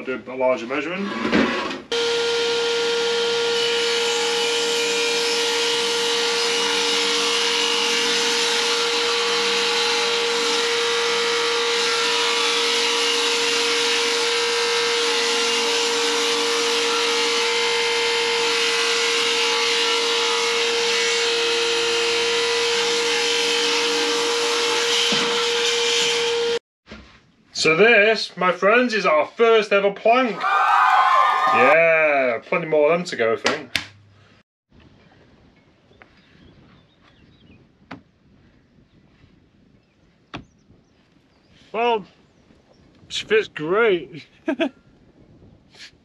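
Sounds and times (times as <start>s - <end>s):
table saw cutting wood: 1.2s - 26.6s.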